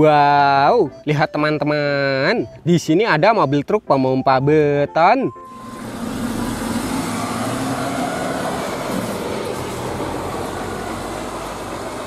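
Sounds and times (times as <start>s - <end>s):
road noise: 5.2s - 12.0s
diesel truck engine running: 5.4s - 12.0s.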